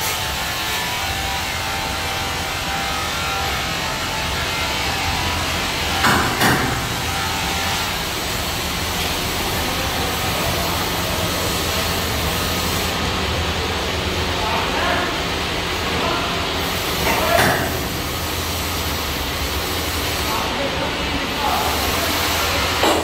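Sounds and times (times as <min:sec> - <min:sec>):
sharp knocks: 0:06.0 - 0:07.0.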